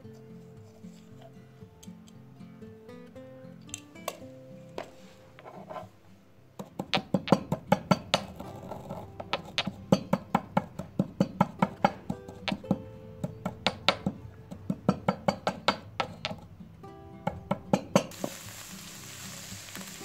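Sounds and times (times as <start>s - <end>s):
quiet background music: 0.0s - 20.0s
pestle pounding in stone mortar: 6.6s - 16.4s.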